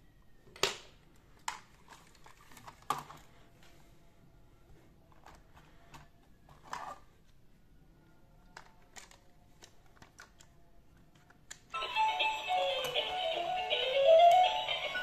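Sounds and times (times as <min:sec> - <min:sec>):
electronic tune from toy speaker: 0:11.8 - 0:15.0.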